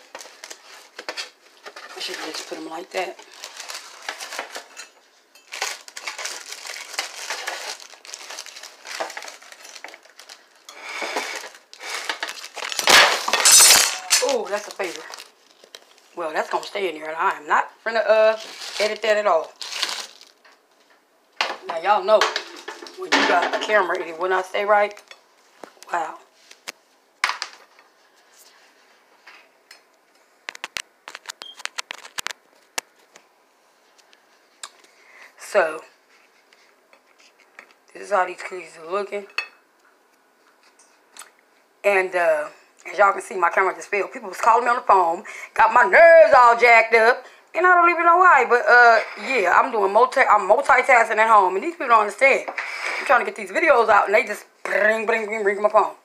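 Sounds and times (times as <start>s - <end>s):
sheet liner crackling: 5.5s - 16.1s.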